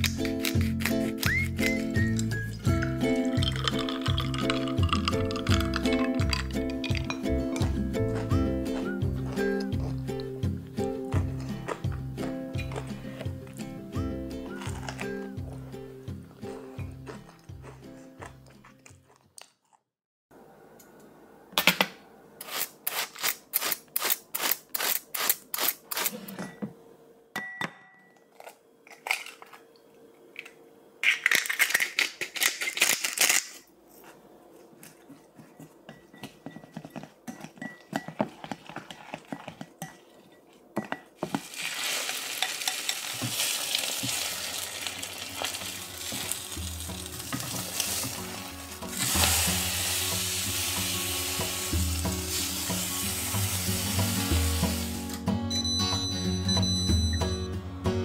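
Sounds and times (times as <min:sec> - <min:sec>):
light clinks of mixing: 0:02.8 - 0:07.7, 0:35.1 - 0:44.2
batter sizzling in a pan: 0:41.3 - 0:55.0.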